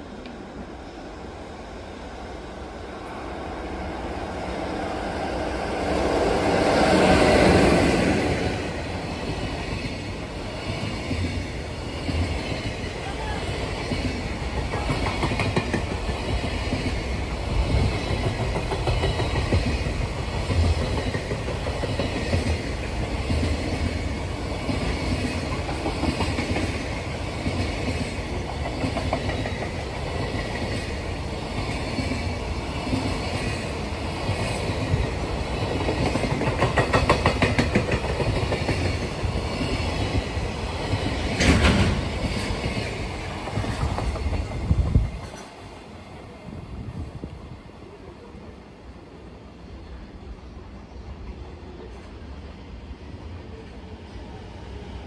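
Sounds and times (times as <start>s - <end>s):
freight train rumbling past: 0.0s - 55.0s
clickety-clack over rail joints: 9.0s - 45.6s.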